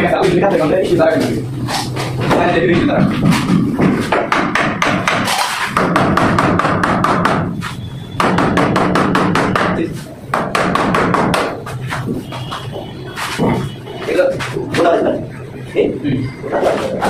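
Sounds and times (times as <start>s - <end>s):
hammer tapping on plastic: 3.0s - 7.5s, 8.2s - 12.1s.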